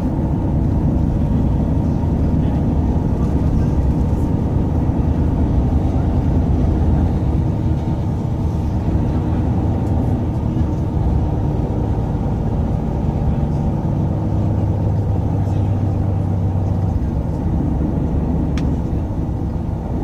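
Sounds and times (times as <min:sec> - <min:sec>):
bus engine and road rumble: 0:00.0 - 0:20.0.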